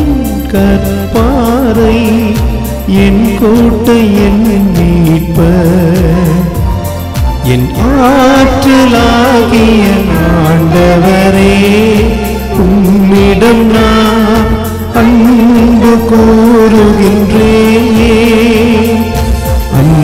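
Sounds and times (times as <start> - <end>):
bass guitar: 0.0 - 20.0
keyboard: 0.0 - 20.0
person singing psalm: 7.4 - 20.0.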